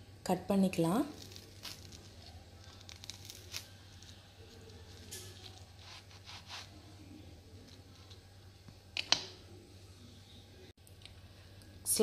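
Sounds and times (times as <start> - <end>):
knife crunching through toast: 1.1 - 6.8.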